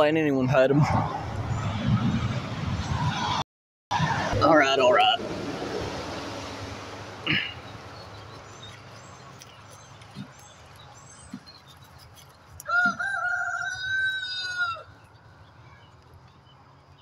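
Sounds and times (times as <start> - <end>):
small bird chirping: 7.6 - 12.9
rooster crowing: 12.6 - 15.0.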